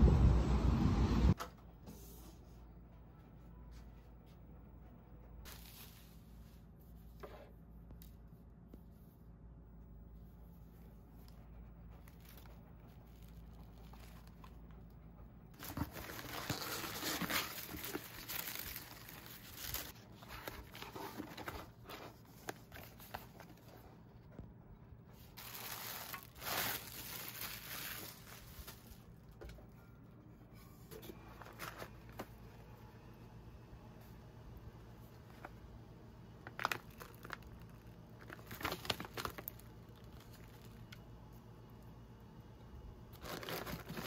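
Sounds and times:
packaging crinkling and rustling: 5.5 - 6.3, 11.9 - 14.8, 15.6 - 23.9, 25.4 - 29.4, 36.4 - 41.0, 43.1 - 44.0.

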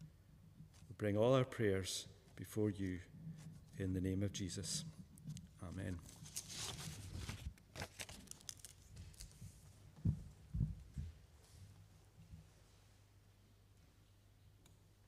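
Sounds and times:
paper rustling: 5.2 - 9.6.

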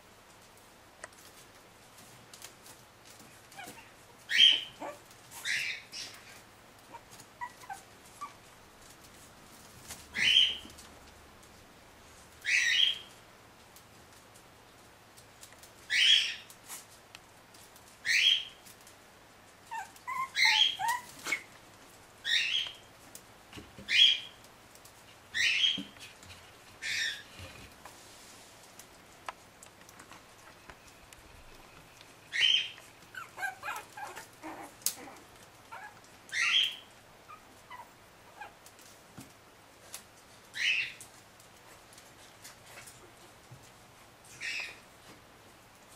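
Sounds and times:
puppies crying: 3.5 - 6.2, 6.9 - 8.4, 19.7 - 21.5, 32.3 - 38.6.

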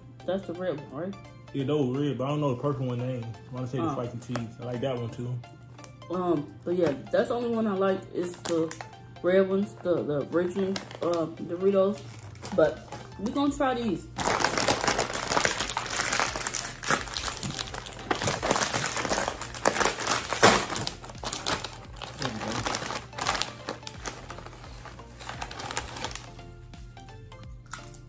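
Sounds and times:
chip bag crinkling: 12.0 - 13.0, 14.2 - 26.4.

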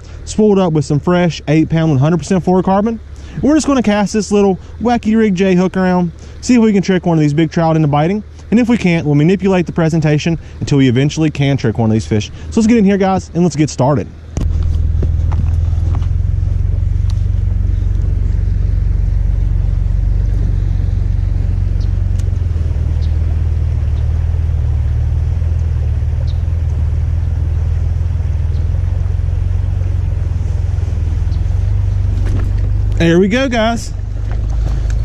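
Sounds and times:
wind buffeting microphone: 14.3 - 35.0
faint light ticks: 22.1 - 22.4, 25.5 - 26.8.

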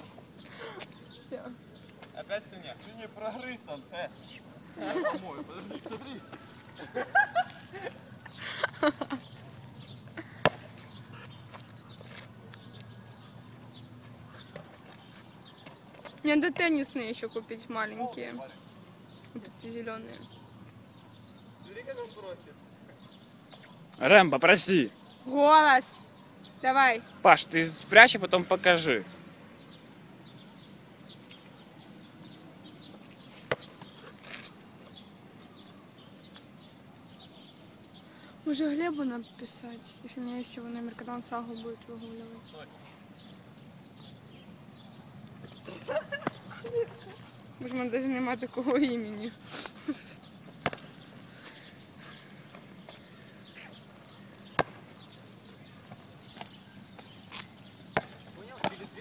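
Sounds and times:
songbird chirping: 0.0 - 59.0
basketball bouncing on asphalt: 10.4 - 12.3, 33.3 - 33.9, 45.4 - 46.5, 50.5 - 51.0, 54.4 - 55.2, 55.8 - 59.0.

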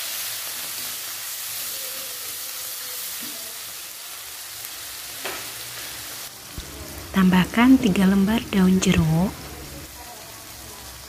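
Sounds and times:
paste sizzling in oil: 0.0 - 11.0.

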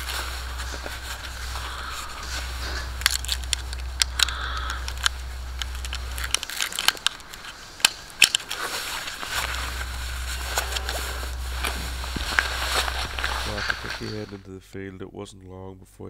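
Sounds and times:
cardboard box rustle: 0.0 - 4.3, 4.9 - 14.4
rifle cartridges clicking and clinking: 3.0 - 8.7.

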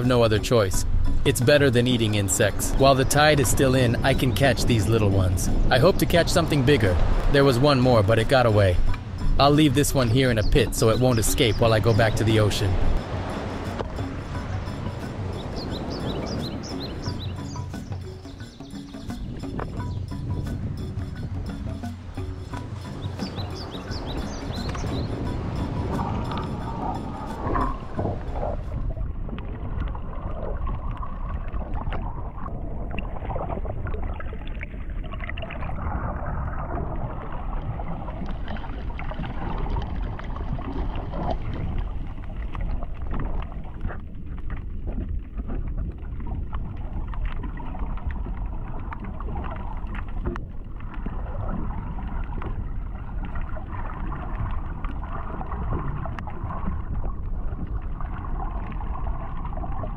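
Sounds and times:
muffled water sloshing: 0.0 - 59.9
low rumble: 19.4 - 47.2.

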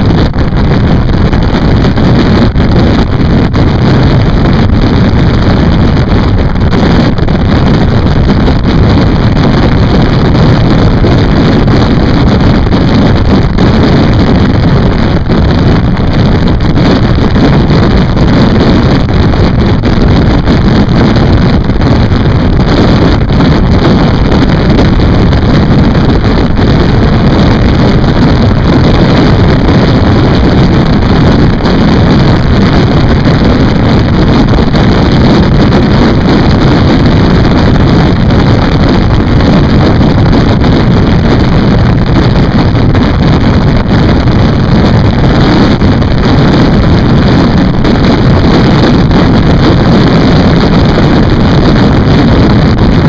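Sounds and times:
motorcycle running: 0.0 - 53.0
wind rushing on microphone: 0.0 - 53.0.

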